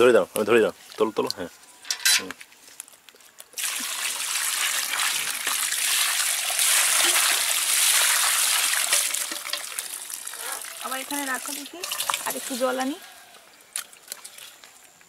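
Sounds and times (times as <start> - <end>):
water draining through mesh: 3.6 - 12.8
water splashing onto fish: 3.6 - 12.8.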